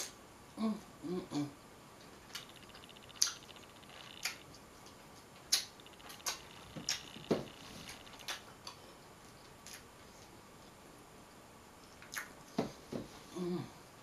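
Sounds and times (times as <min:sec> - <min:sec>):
wet mouth clicks and smacks: 0:04.2 - 0:04.6, 0:05.5 - 0:07.1, 0:12.0 - 0:12.4.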